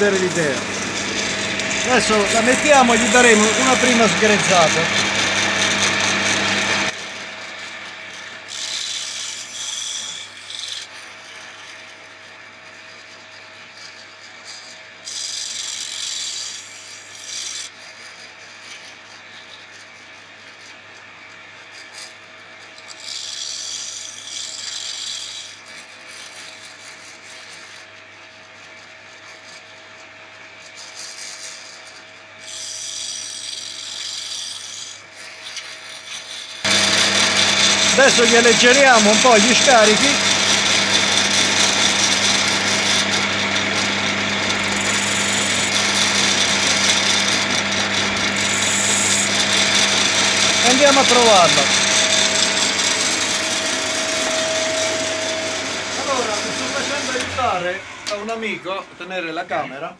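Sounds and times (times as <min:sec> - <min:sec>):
drill bit grinding hiss: 0:00.0 - 0:07.0, 0:08.2 - 0:10.9, 0:15.0 - 0:17.7, 0:22.8 - 0:25.6, 0:30.9 - 0:58.6
bench grinder humming: 0:00.0 - 0:18.0, 0:21.9 - 0:27.8, 0:30.6 - 0:59.5.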